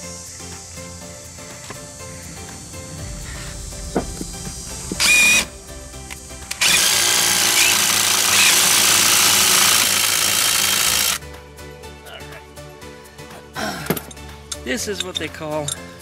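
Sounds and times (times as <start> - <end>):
impact driver running on a bolt: 5.0 - 5.4, 6.5 - 11.2.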